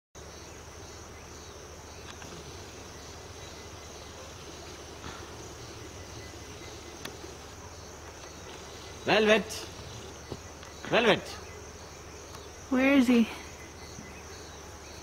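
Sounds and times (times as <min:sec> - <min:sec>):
insects trilling: 0:00.2 - 0:15.0
faint clicks: 0:06.9 - 0:07.3.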